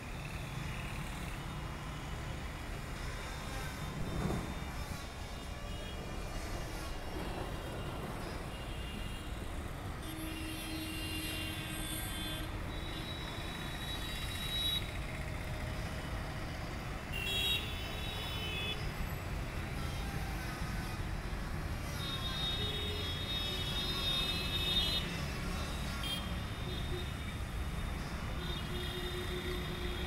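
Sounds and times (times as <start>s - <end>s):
low town background rumble: 0.0s - 12.7s.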